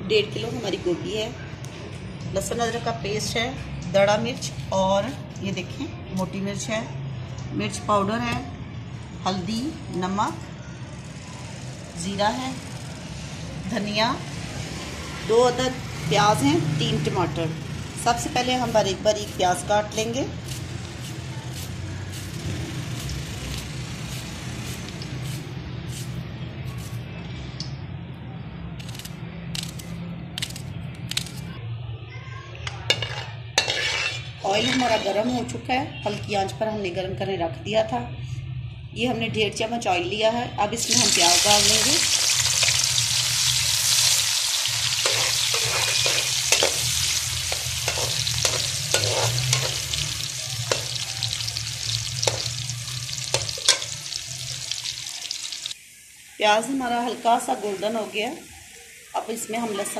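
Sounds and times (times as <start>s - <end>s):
onions sizzling in hot oil: 18.0s - 26.2s, 32.9s - 35.5s, 40.8s - 59.9s
metal spoon scraping pot: 32.9s - 35.5s, 45.0s - 51.0s, 53.2s - 54.0s.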